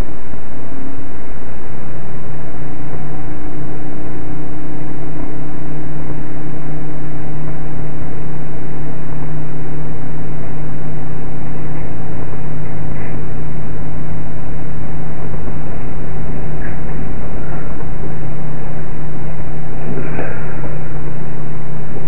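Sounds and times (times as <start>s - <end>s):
microwave oven humming: 0.0s - 22.0s.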